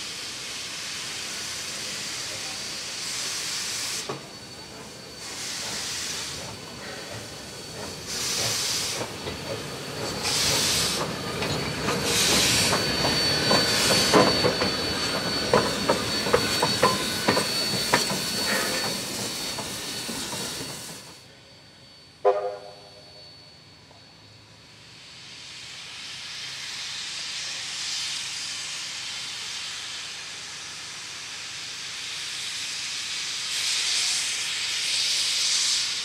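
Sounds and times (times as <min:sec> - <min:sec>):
steam locomotive exhaust hissing: 0:00.0 - 0:36.0
thin high whine: 0:21.3 - 0:25.3.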